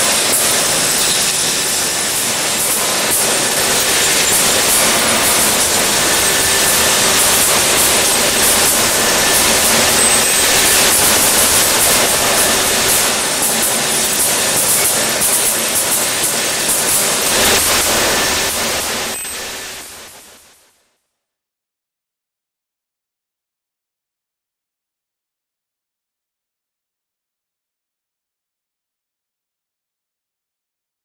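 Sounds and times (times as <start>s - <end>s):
metal pieces clattering down chute: 0.0s - 19.9s
machinery hiss: 0.0s - 20.4s.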